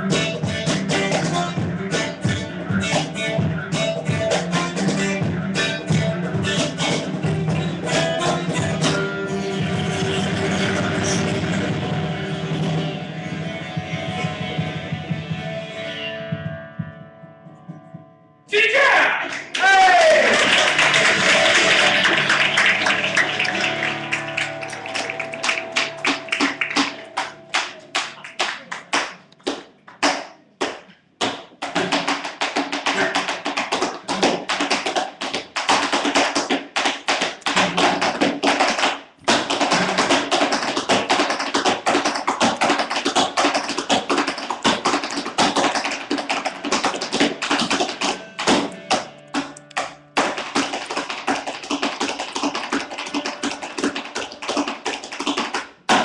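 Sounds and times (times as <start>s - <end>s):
tap shoes striking floor: 29.4s - 56.0s.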